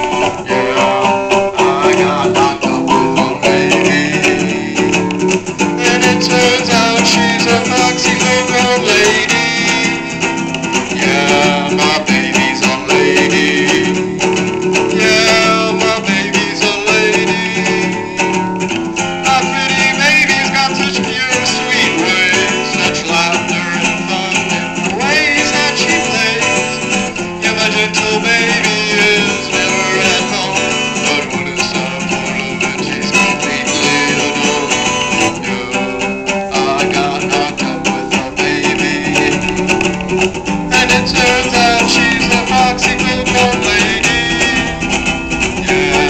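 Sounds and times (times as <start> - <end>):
man's voice: 0.0 - 5.1, 5.8 - 18.4, 19.2 - 46.0
acoustic guitar strummed: 0.0 - 46.0.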